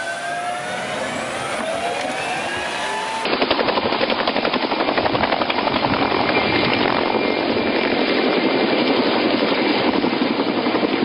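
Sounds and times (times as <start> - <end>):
tank engine whining: 0.0 - 3.5
helicopter rotor chop: 0.0 - 11.0.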